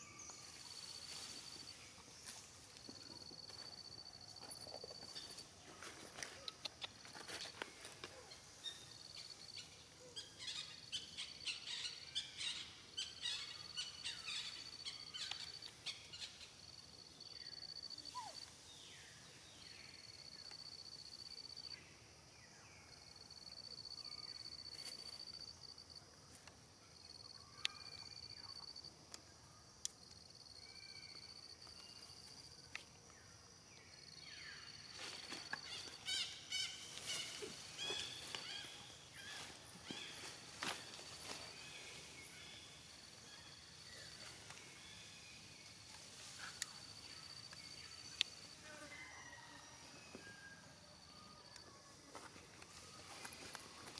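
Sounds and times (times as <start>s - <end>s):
insect high-pitched trill: 8.6s - 18.7s, 34.0s - 53.9s.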